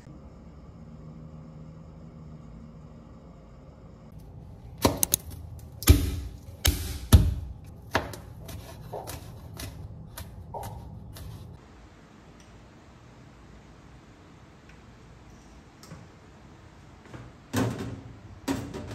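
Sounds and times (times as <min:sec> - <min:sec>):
knife cutting on wooden board: 0:07.9 - 0:11.4.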